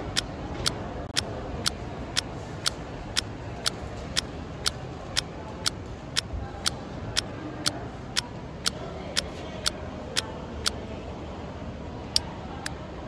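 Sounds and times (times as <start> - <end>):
clock ticking: 0.0 - 3.8.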